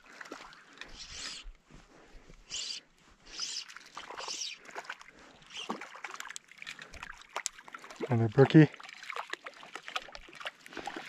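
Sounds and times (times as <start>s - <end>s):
fish splashing at water surface: 3.4s - 11.0s.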